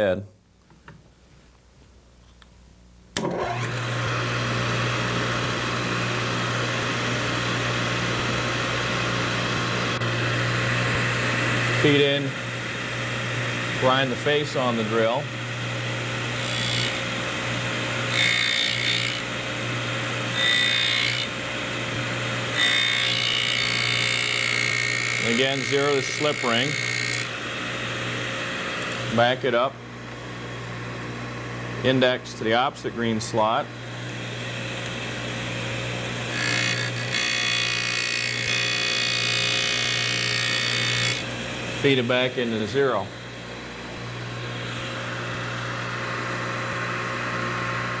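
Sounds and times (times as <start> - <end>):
grinder motor hum: 3.2 - 48.0
scratchy grinding of drill bit: 16.4 - 17.1, 18.0 - 19.3, 20.3 - 21.4, 22.5 - 27.3, 36.4 - 42.6.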